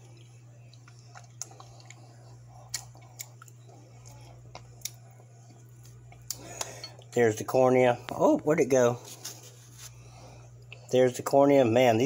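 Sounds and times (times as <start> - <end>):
close-up chewing: 0.0 - 7.1
low steady hum: 0.0 - 12.0.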